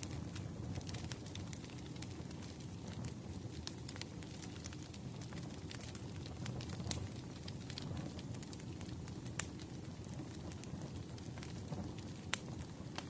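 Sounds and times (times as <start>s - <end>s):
fire crackling and popping: 0.0s - 13.0s
firewood burning rumble: 0.0s - 13.0s.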